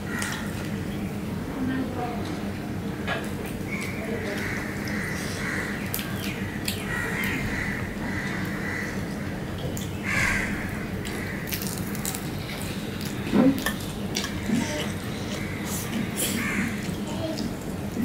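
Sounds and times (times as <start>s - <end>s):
steady low hum: 0.0s - 18.0s
chewing: 11.0s - 18.0s.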